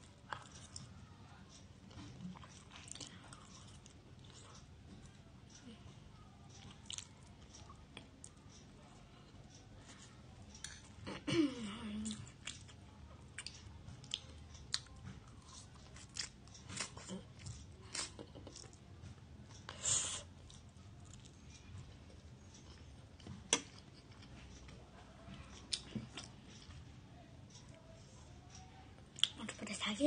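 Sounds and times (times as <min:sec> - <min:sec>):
wet chewing: 0:06.6 - 0:08.4, 0:12.0 - 0:18.8.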